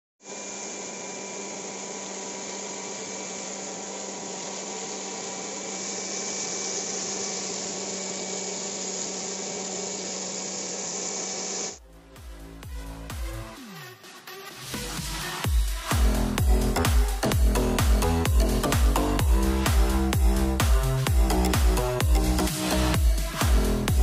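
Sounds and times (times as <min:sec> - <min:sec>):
vacuum motor whine: 0:00.2 - 0:11.8.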